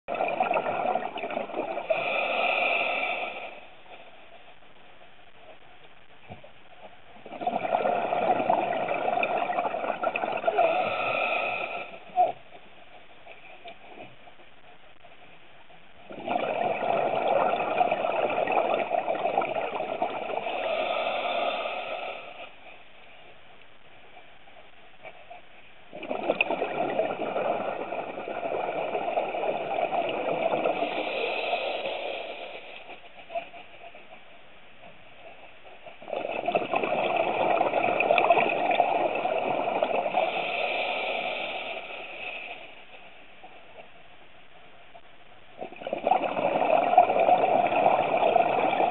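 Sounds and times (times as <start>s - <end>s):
underwater regulator bubbling: 0.0s - 4.0s, 7.2s - 12.7s, 16.0s - 22.7s, 25.9s - 34.3s, 34.9s - 43.9s, 45.5s - 48.9s.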